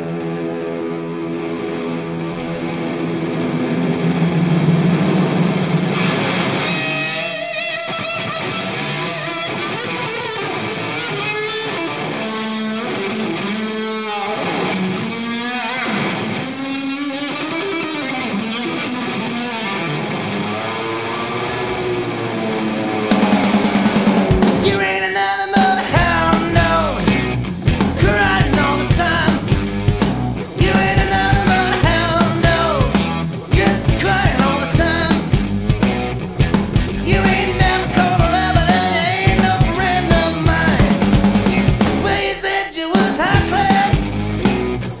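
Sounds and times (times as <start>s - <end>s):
electric guitar solo: 0.0s - 39.4s
full band playing: 22.3s - 45.0s.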